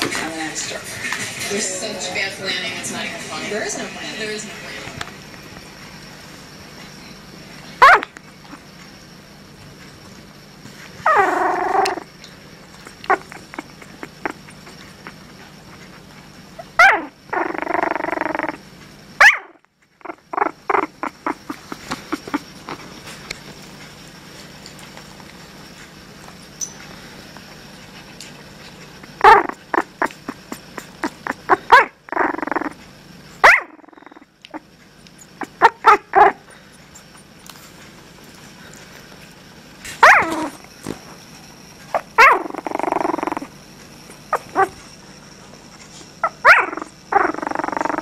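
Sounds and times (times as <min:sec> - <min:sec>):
puppy purr-like rumble: 0:11.0 - 0:15.9, 0:16.6 - 0:18.6, 0:20.0 - 0:23.8, 0:29.1 - 0:32.8, 0:42.0 - 0:44.9, 0:46.2 - 0:48.0.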